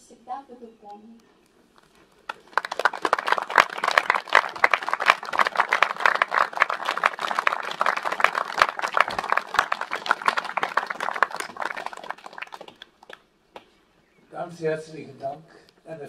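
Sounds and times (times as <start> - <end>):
audience clapping: 2.3 - 13.2.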